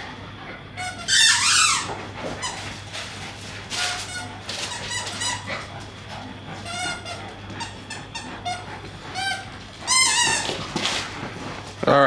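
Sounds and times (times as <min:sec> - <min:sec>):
puppies squeaking: 0:00.8 - 0:02.6, 0:03.8 - 0:05.7, 0:06.6 - 0:10.8.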